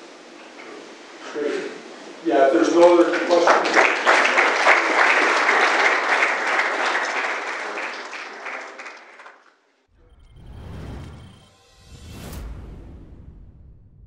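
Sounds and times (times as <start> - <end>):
audience applauding: 2.7 - 9.7.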